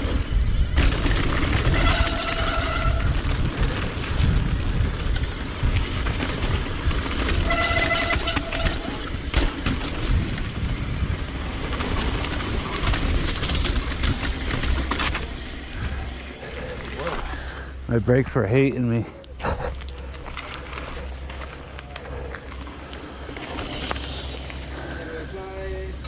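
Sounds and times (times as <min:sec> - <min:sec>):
bike brakes squealing: 0:00.0 - 0:03.3, 0:07.3 - 0:09.4
bike rattling over rough ground: 0:00.0 - 0:26.0.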